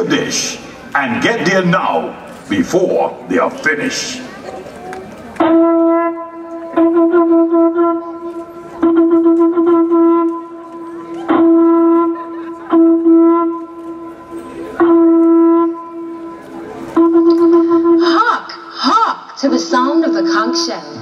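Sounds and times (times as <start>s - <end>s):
conch shell horn blasts: 5.4s - 18.2s.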